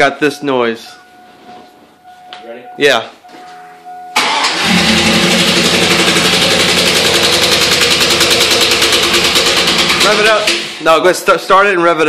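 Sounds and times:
engine starting: 0:04.2 - 0:05.6, 0:09.9 - 0:10.8
engine running with rapid knock: 0:04.6 - 0:10.8.

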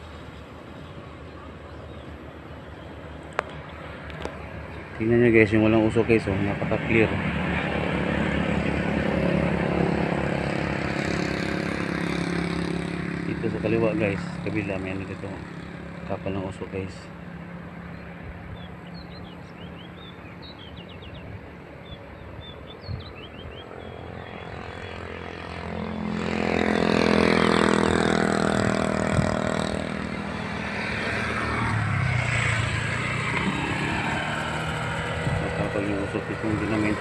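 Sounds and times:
vehicle engine passing close: 0:02.6 - 0:22.0, 0:23.3 - 0:37.0
bird chirps: 0:17.9 - 0:25.8.

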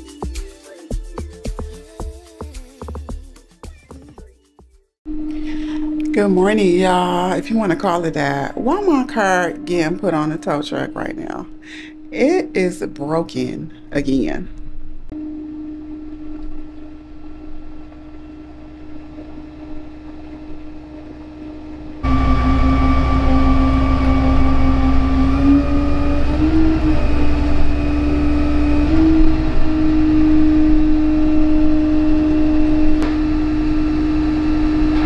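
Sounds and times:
rising mechanical hum: 0:05.1 - 0:35.0
truck engine running: 0:16.0 - 0:35.0.

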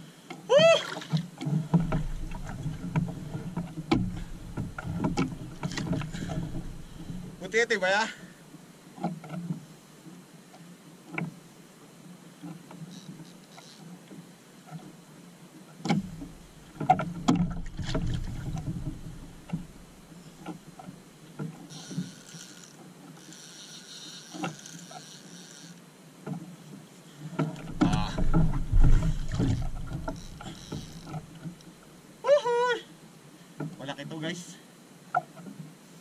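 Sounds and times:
knocks against boat hull: 0:01.8 - 0:07.4, 0:27.5 - 0:31.4.

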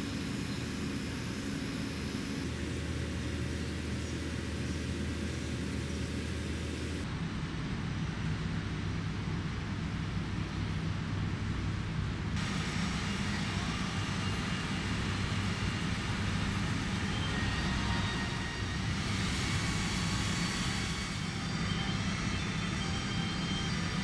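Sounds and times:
faint high whine: 0:00.0 - 0:07.0, 0:12.4 - 0:24.0
milling machine hum: 0:12.4 - 0:24.0.

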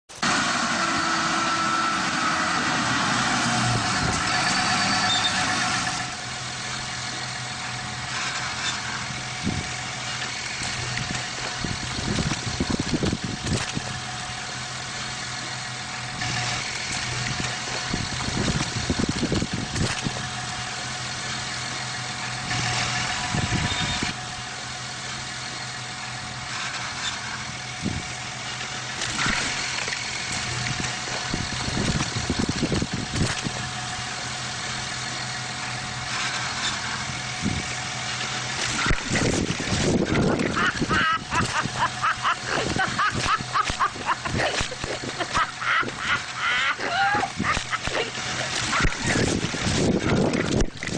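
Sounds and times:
tractor engine running: 0:00.1 - 0:50.9
baler machinery knocking and rattling: 0:03.7 - 0:24.2.

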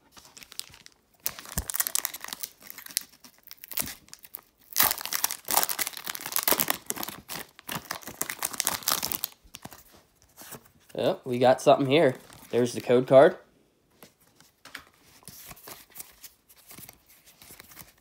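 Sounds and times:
foil wrapper crinkling: 0:00.1 - 0:10.0.

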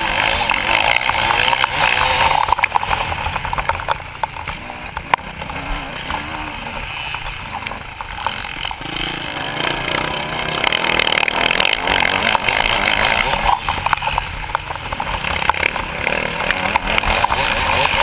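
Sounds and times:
motorbike engine revving: 0:00.0 - 0:18.0
chassis rattles and knocks: 0:00.2 - 0:09.0.

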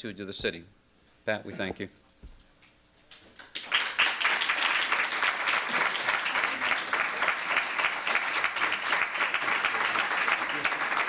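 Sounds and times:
audience applauding: 0:03.4 - 0:11.0.

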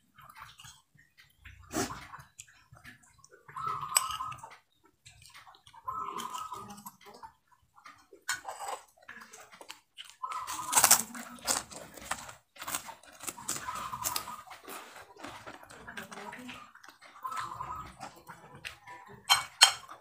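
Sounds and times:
chewing: 0:00.0 - 0:20.0
spoon scraping ceramic plate: 0:19.2 - 0:19.8.

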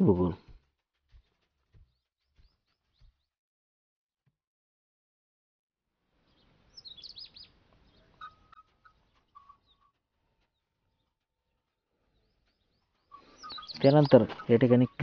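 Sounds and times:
birds chirping: 0:00.0 - 0:03.4, 0:06.2 - 0:15.0
whistled bird notes: 0:06.3 - 0:10.6, 0:12.1 - 0:15.0.

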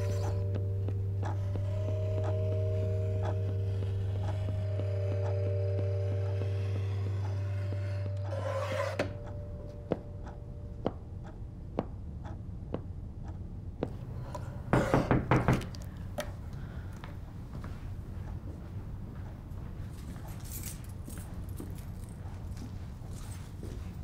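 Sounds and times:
low hum: 0:00.0 - 0:14.7.

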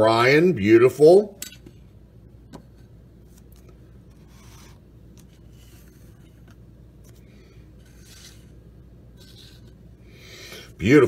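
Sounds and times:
low steady hum: 0:00.0 - 0:11.0
cards rubbing together: 0:03.2 - 0:08.6.

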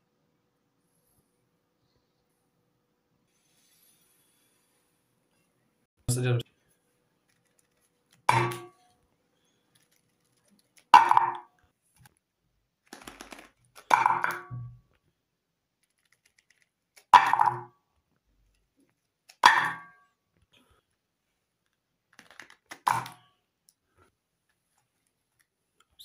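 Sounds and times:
wrapper rustling: 0:09.7 - 0:10.9.

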